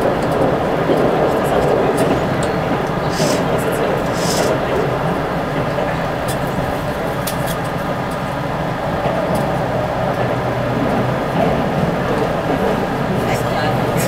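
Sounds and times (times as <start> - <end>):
train wheels and motors rumbling: 0.0 - 14.0.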